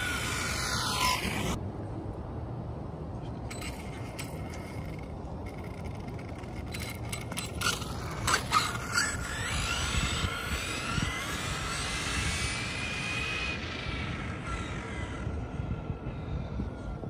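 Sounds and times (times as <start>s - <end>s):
toy truck motor whine: 0.0s - 1.6s, 3.5s - 14.6s.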